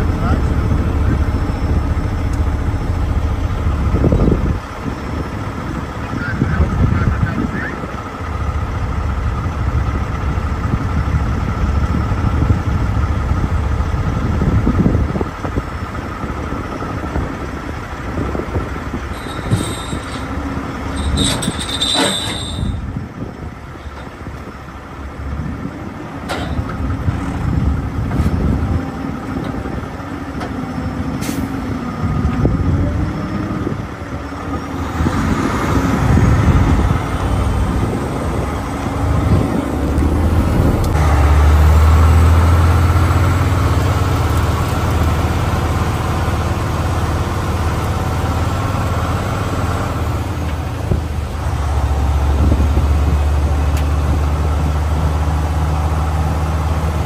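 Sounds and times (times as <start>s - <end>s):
truck rattling: 0.0s - 55.8s
diesel truck engine running: 0.0s - 57.0s
brief high-pitched squeal: 19.2s - 20.3s, 20.9s - 22.8s.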